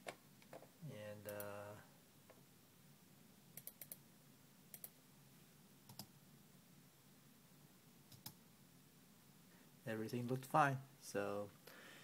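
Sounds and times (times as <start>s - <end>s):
faint computer mouse clicks: 4.7s - 5.0s.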